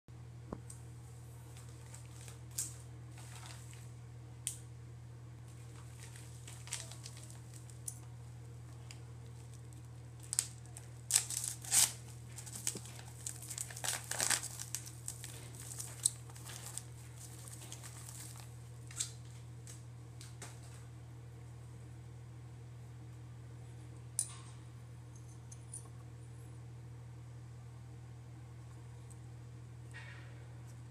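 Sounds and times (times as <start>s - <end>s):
paper bag crinkling and tearing: 1.6s - 3.8s, 5.6s - 7.8s, 8.8s - 19.1s.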